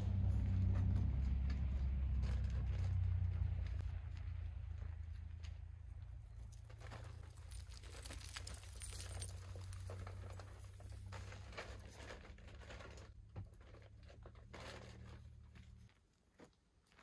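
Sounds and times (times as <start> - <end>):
gear rustling and clattering: 6.2 - 15.8.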